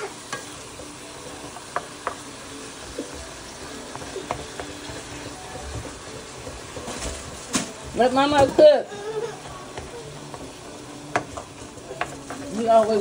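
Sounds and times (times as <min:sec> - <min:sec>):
meat sizzling in a frying pan: 0:00.0 - 0:13.0
spoon tapping and scraping pan: 0:01.4 - 0:02.3, 0:02.9 - 0:06.9, 0:09.7 - 0:13.0.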